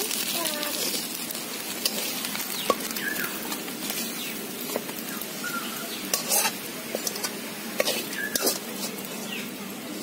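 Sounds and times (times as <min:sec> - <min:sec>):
steady hiss: 0:00.0 - 0:10.0
bird chirping: 0:02.6 - 0:03.4, 0:05.0 - 0:06.1
metal spatula scraping a pan: 0:06.1 - 0:09.3.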